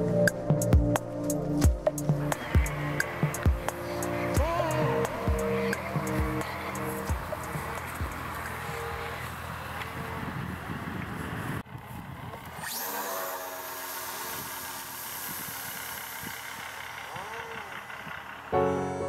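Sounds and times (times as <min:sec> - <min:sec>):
music: 0:00.0 - 0:08.5, 0:18.6 - 0:19.0
electric motor and propeller whine: 0:00.0 - 0:19.0
wind rumbling on microphone: 0:00.5 - 0:12.7.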